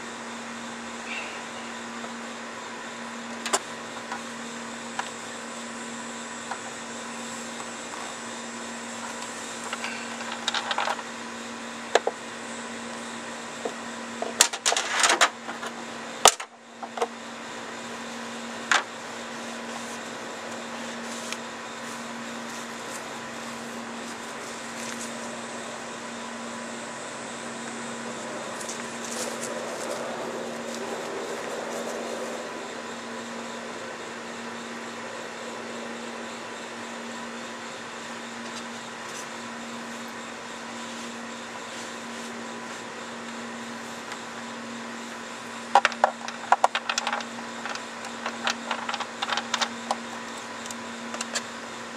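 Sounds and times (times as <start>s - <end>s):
car engine idling: 26.8s - 33.8s.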